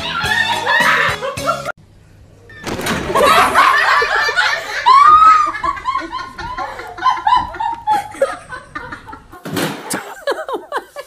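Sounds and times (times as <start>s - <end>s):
person laughing: 3.1s - 11.0s.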